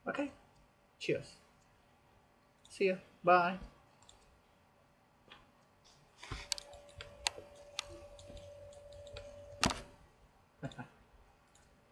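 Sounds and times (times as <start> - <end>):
mouse and keyboard clicks: 4.0 - 4.3, 6.4 - 9.9
faint steady tone: 6.3 - 11.9.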